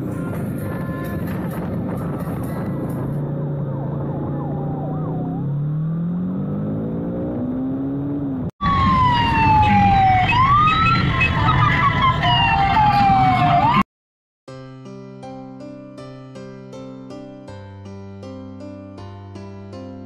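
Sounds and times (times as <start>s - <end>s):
motorcycle engine accelerating: 1.3s - 8.5s
police siren wailing: 3.3s - 6.1s, 8.6s - 13.8s
piano music: 14.5s - 20.0s.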